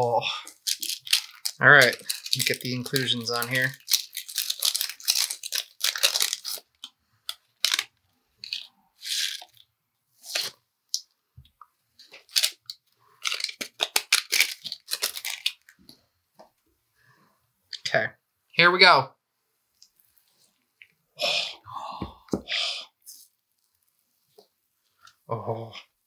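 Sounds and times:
packet tearing and crinkling: 0.4 - 9.6, 10.2 - 10.6, 12.0 - 15.8.

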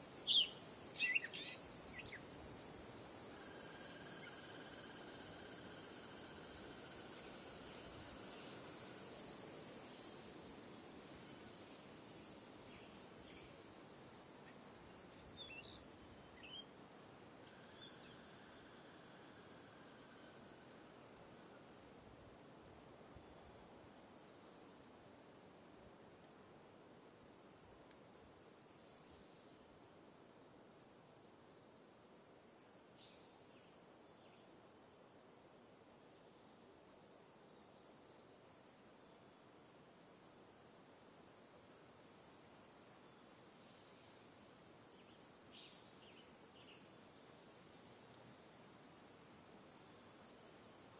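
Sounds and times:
steady outdoor hiss: 0.0 - 50.9
bird chirps: 0.2 - 4.4.

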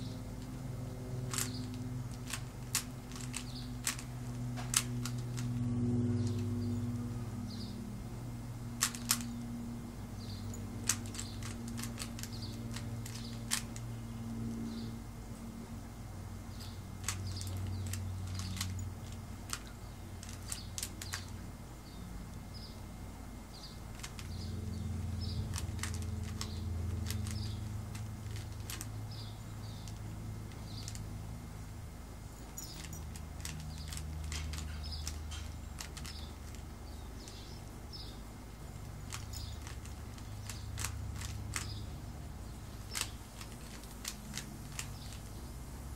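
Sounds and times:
steady low hum: 0.0 - 45.9
puzzle cube clicking as twisted: 1.3 - 4.1, 8.8 - 9.3, 10.8 - 13.9, 17.0 - 21.4, 25.5 - 28.9, 32.8 - 36.6, 39.1 - 41.7.

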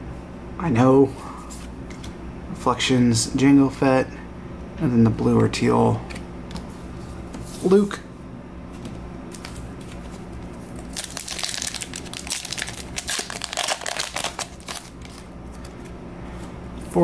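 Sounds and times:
wrapper tearing and crinkling: 10.8 - 15.6.

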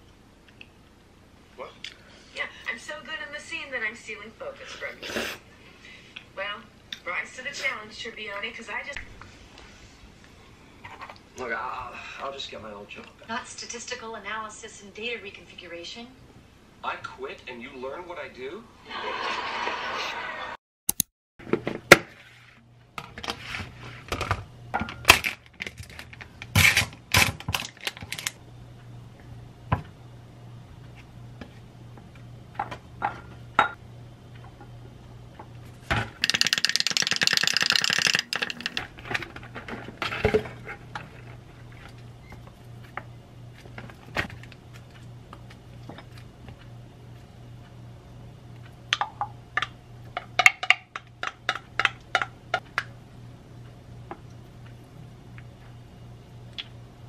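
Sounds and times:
low steady hum: 0.0 - 18.8, 21.4 - 57.0
utensils clicking against dishes: 36.2 - 38.9.

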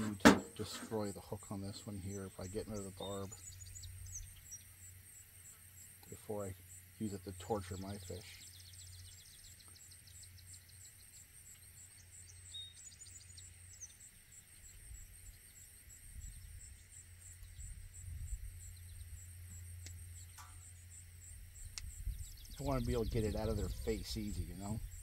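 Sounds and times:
insect chirping: 0.0 - 25.0
low steady rumble: 6.1 - 25.0
faint clicks: 19.8 - 20.7.

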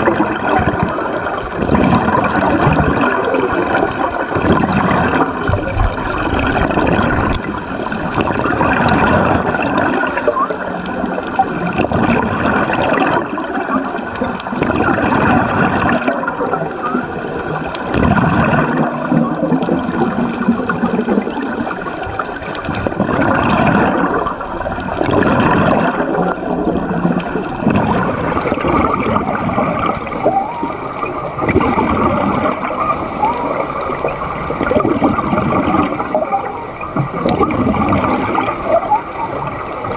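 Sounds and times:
underwater bubbles gurgling: 0.0 - 39.9.

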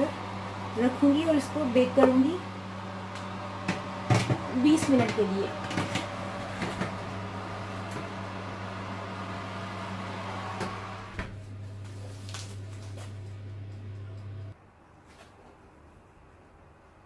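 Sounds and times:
electric oven humming: 0.0 - 14.6.

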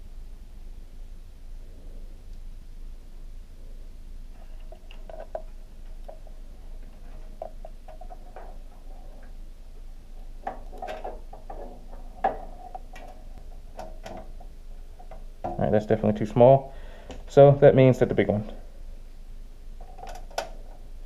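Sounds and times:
hands handling computer parts: 10.2 - 15.7.

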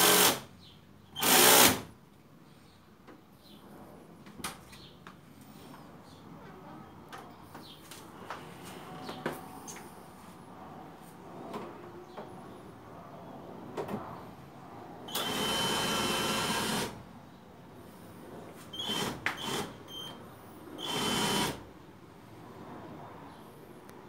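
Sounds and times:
cordless drill whining: 1.2 - 1.8, 15.1 - 16.9, 20.8 - 21.6.

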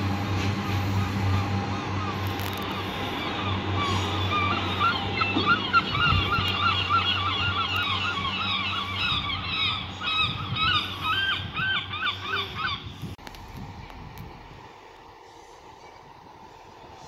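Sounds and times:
birds honking: 0.6 - 13.0.

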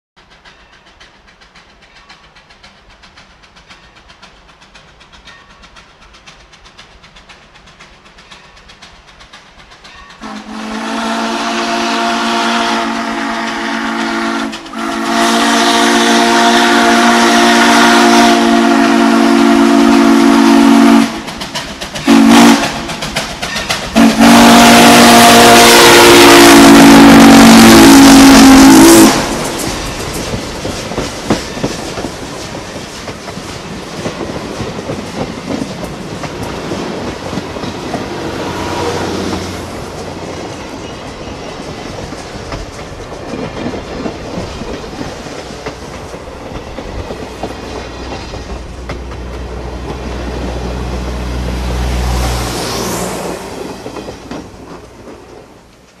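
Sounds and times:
train wheels clattering on rails: 0.2 - 56.0
steam locomotive chime whistle: 10.0 - 21.3, 22.0 - 23.0, 24.0 - 29.6, 38.1 - 39.6.

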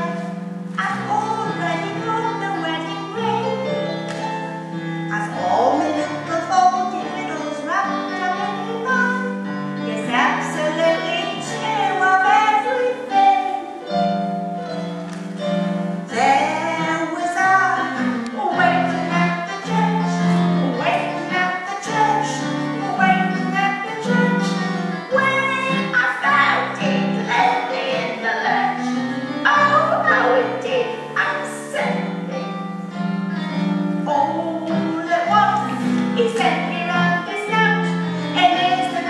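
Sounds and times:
woman singing: 0.0 - 4.0, 5.1 - 14.0, 16.1 - 32.4, 34.0 - 39.0.

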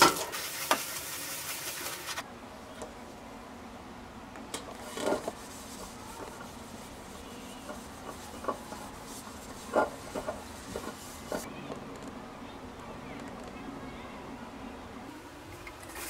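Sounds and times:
cloth rubbing inside steel pot: 0.0 - 2.2, 4.7 - 11.5.

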